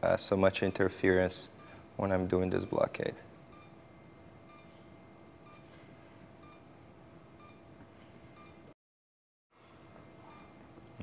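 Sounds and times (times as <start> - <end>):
faint electronic beeping: 3.5 - 6.7, 7.4 - 8.7, 10.2 - 10.6.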